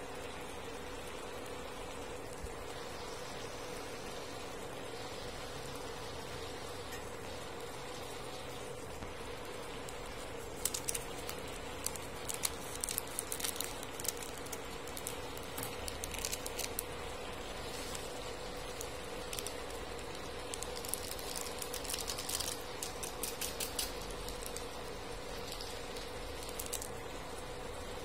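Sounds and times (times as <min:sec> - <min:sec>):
noodles boiling in a pan: 0:00.0 - 0:28.0
steady hum: 0:00.0 - 0:28.0
foil sachets crinkling: 0:09.3 - 0:27.4.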